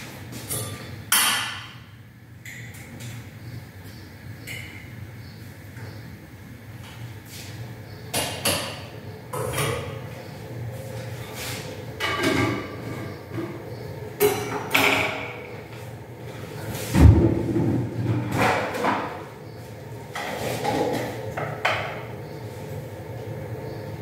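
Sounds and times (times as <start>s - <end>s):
steady low hum: 0.0s - 24.0s
cookware knocks and clatters: 12.0s - 13.6s.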